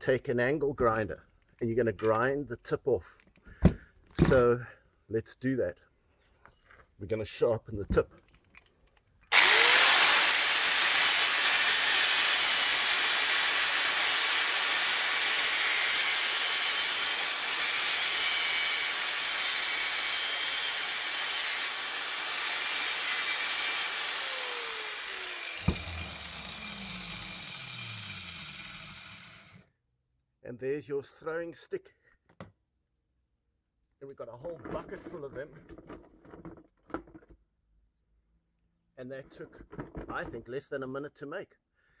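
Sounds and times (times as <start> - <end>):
angle grinder grinding metal: 9.3 - 29.6.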